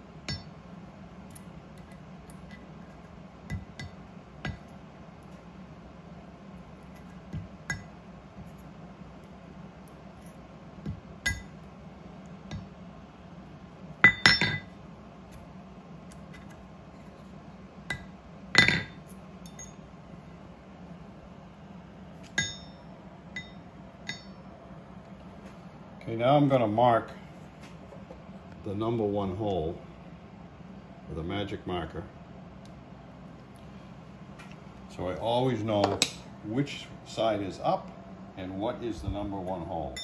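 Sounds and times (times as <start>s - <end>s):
steel pins clinking on metal: 11.2s - 11.7s, 14.0s - 14.7s, 17.9s - 19.9s, 22.3s - 24.4s.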